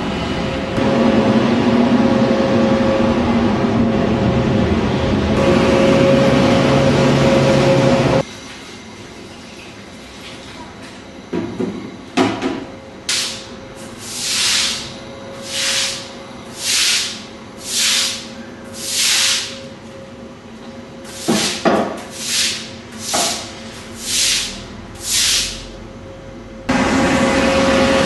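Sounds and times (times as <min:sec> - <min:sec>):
broom sweeping wet stone floor: 0:13.1 - 0:19.6, 0:21.1 - 0:25.7
broom knocking on floor: 0:21.2 - 0:22.0.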